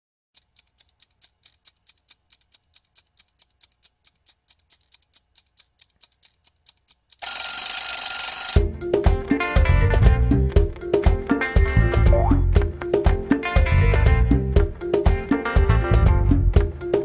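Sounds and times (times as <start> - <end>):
clock ticking quickly: 0.3 - 8.6
alarm clock ringing: 7.2 - 8.6.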